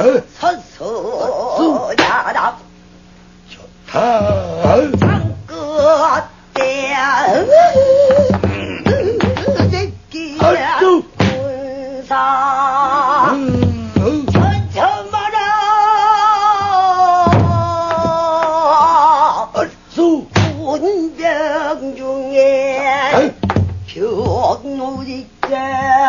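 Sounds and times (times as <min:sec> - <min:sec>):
person singing with wavering vibrato: 0:03.5 - 0:26.0
barrel drum strikes: 0:04.2 - 0:05.5, 0:11.2 - 0:11.5, 0:13.5 - 0:14.8, 0:17.2 - 0:18.2, 0:20.3 - 0:20.7, 0:23.4 - 0:24.5.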